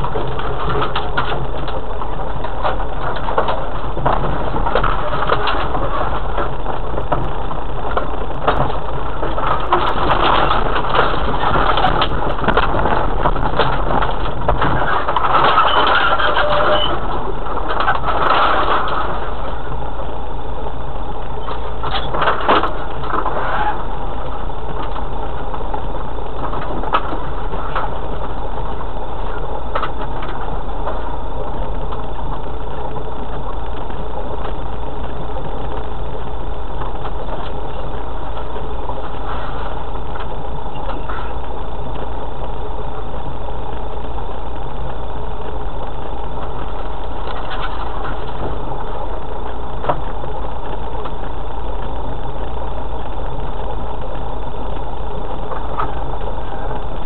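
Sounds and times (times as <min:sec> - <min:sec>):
tyres on loose stone: 0:00.0 - 0:19.8
vehicle body rattling and knocking: 0:00.0 - 0:19.9, 0:21.3 - 0:51.3
vehicle engine drone: 0:00.0 - 0:57.0.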